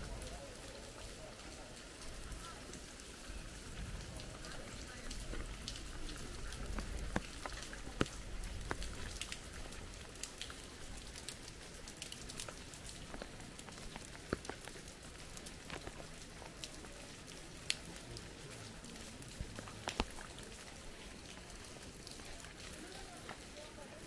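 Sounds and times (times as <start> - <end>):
faint outdoor hiss: 0.0 - 24.0
light taps and clicks: 6.6 - 9.4, 12.0 - 16.0, 19.4 - 20.3.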